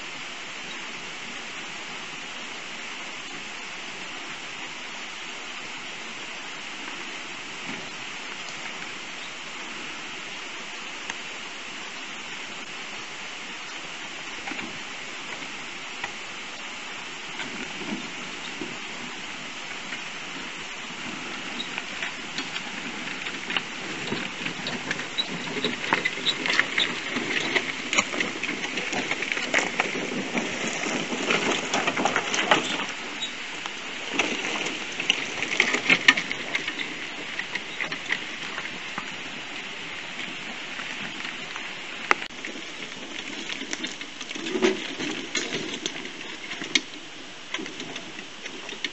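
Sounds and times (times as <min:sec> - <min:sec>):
steady hiss: 0:00.0 - 0:48.9
tyres crunching on stones: 0:14.4 - 0:48.9.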